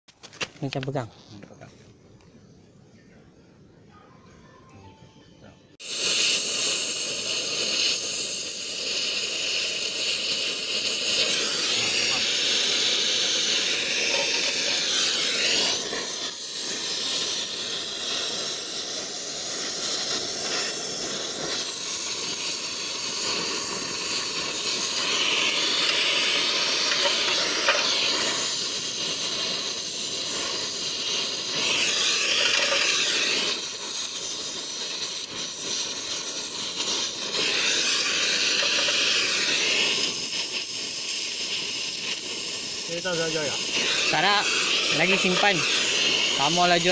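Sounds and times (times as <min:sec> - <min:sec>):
welding torch flame hissing: 0:05.8 - 0:46.9.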